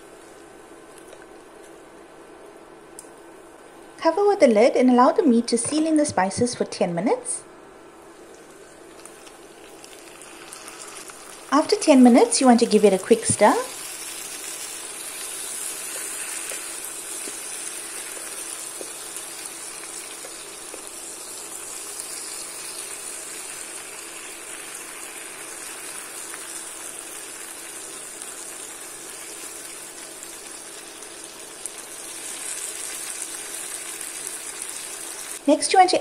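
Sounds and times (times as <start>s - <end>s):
meat sizzling in a frying pan: 9.0s - 35.5s.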